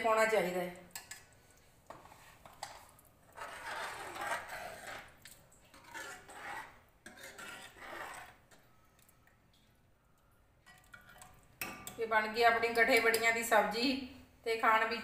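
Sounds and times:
ladle scraping metal pot: 1.9 - 8.8.

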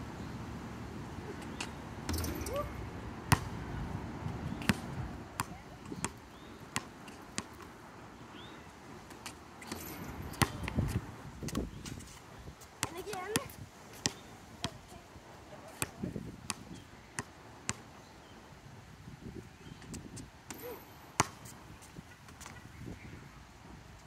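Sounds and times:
basketball bouncing on hard court: 2.1 - 2.7, 3.3 - 3.5, 9.7 - 10.9.

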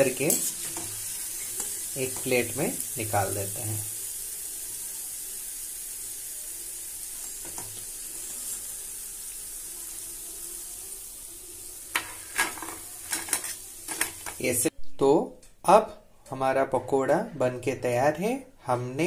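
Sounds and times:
hot oil sizzling: 0.0 - 14.7.

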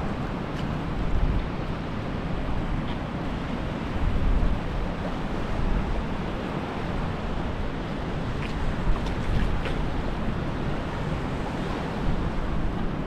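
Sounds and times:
rushing wind: 0.0 - 13.0
sea surf: 0.0 - 13.0
wind buffeting microphone: 0.0 - 13.0.

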